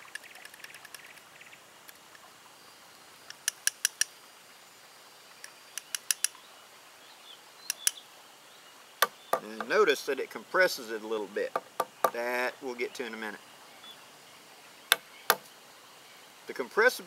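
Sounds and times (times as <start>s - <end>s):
faint ticks: 2.9s - 4.2s
small metallic clicks: 3.3s - 4.1s, 5.4s - 6.4s.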